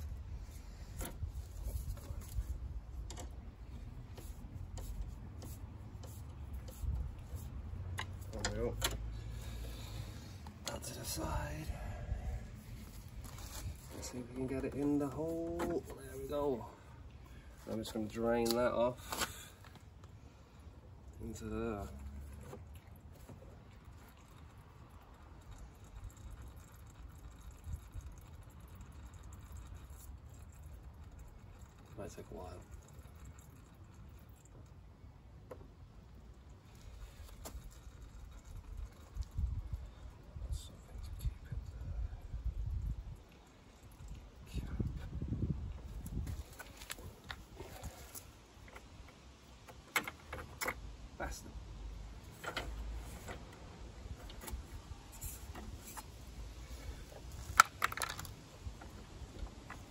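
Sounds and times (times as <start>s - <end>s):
low rumble: 10.9s - 14.3s
fluid trickling into container: 22.1s - 34.9s.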